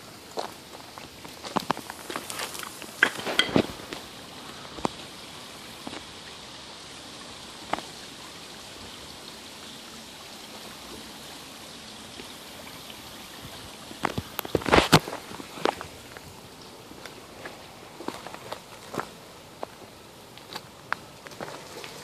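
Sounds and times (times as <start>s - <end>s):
water splashing onto rocks: 0.3s - 22.0s
footsteps on loose rock: 14.2s - 16.2s, 17.0s - 19.8s.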